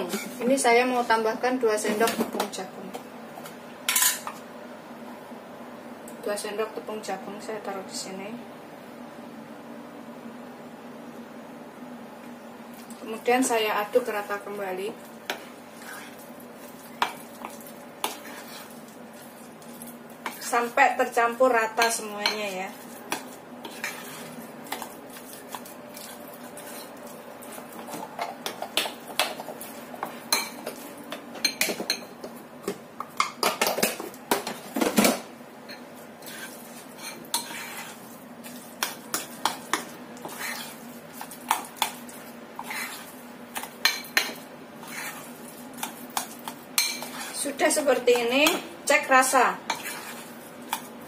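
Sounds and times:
spoon scraping ceramic bowl: 0:21.8 - 0:26.9, 0:35.7 - 0:40.8, 0:42.6 - 0:43.1, 0:43.9 - 0:47.4, 0:49.7 - 0:50.9.

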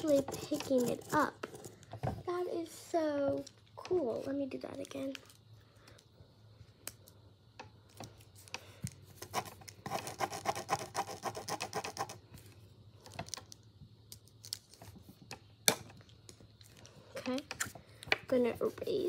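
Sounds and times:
pencil scribbling on paper: 0:00.0 - 0:01.6, 0:09.2 - 0:12.2.

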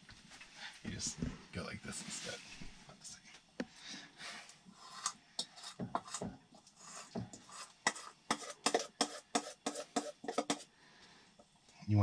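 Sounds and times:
spoon scraping metal bowl: 0:04.8 - 0:10.7.

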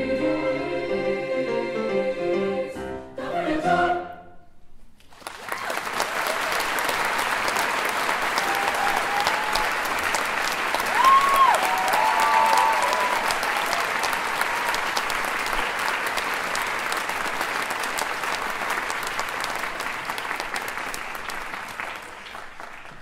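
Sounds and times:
audience applauding: 0:05.0 - 0:23.0
high cheer: 0:05.4 - 0:15.1.

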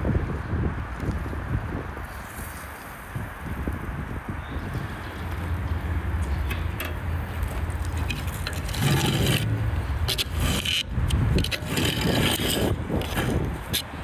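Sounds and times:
steel lid scraping and clanking: 0:08.0 - 0:13.9.

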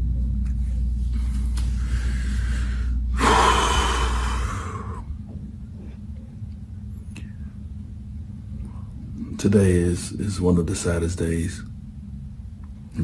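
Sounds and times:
man breathing heavily while crying: 0:01.8 - 0:05.1.

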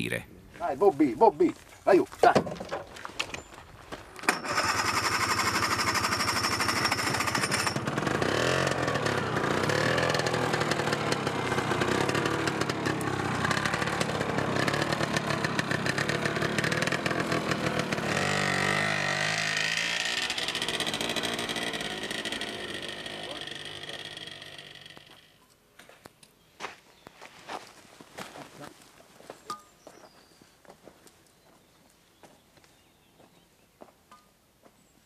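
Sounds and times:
small truck engine starting and revving: 0:04.2 - 0:25.4.

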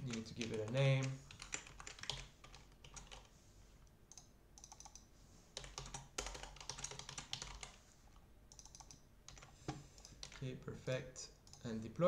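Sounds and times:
typing on computer keyboard: 0:00.1 - 0:03.3, 0:04.1 - 0:07.8, 0:08.5 - 0:10.4.

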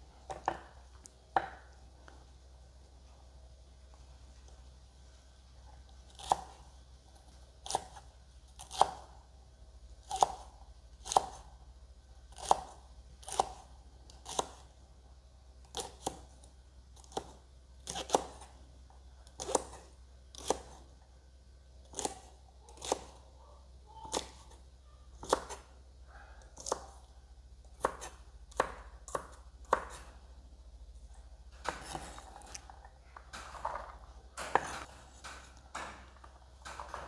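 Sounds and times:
knife chopping beans on wood: 0:27.8 - 0:30.2, 0:31.5 - 0:32.7, 0:33.3 - 0:37.0.

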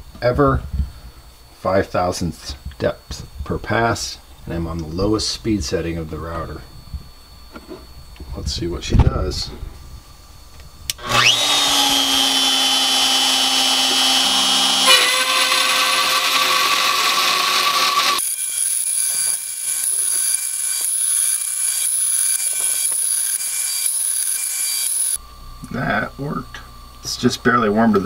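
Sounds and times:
milling machine cutting steel: 0:11.0 - 0:25.2.

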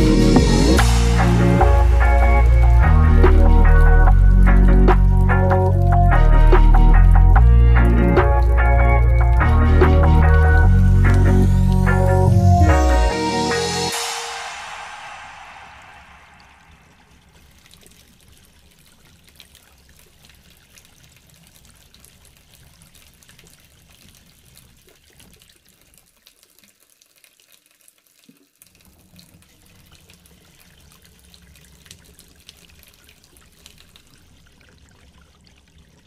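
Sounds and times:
low rumble: 0:00.0 - 0:17.5
faint trickling water: 0:00.8 - 0:12.3, 0:15.5 - 0:36.0.

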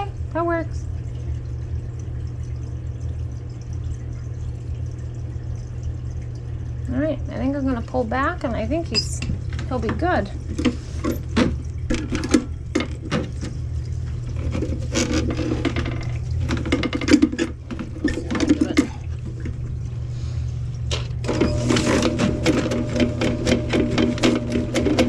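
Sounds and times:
low motor hum: 0:00.0 - 0:25.0
drain snake cable rattling: 0:14.3 - 0:19.6, 0:21.0 - 0:25.0.

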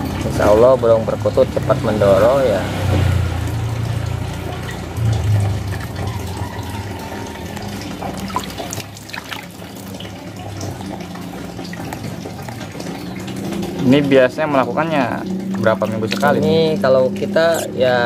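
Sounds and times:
tap water running and splashing: 0:00.0 - 0:18.0
low hum: 0:03.0 - 0:07.2.

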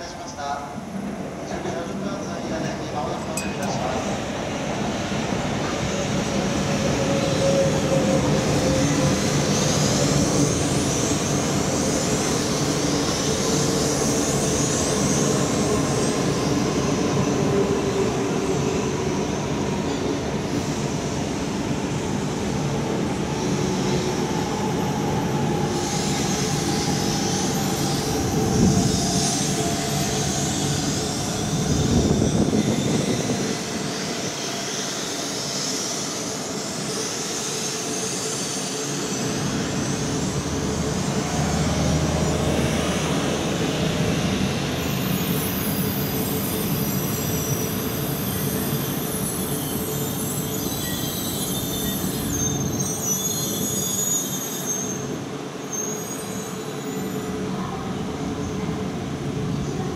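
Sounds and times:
high-pitched wheel squeal: 0:44.8 - 0:57.3.

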